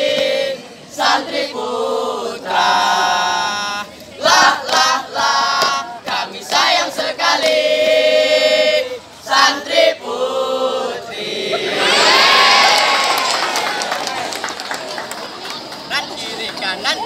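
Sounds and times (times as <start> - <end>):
boys singing in unison: 0.0 - 12.4.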